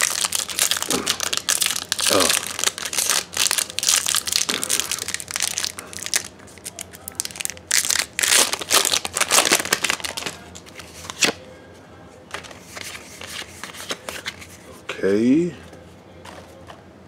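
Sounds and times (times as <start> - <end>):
foil wrapper crinkling: 0.0 - 11.3.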